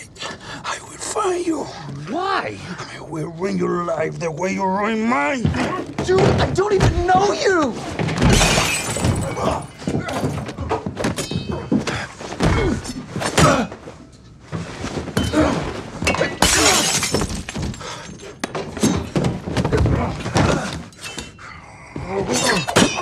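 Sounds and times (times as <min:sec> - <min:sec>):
glass smashing: 0:08.2 - 0:10.4, 0:16.1 - 0:17.8
men grunting and gasping: 0:11.8 - 0:14.0, 0:19.8 - 0:23.0.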